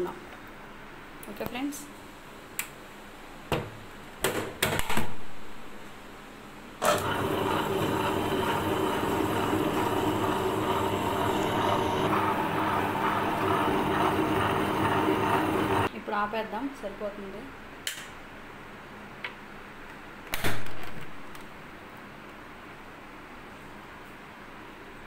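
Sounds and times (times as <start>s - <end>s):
wet grinder running: 6.8s - 15.9s.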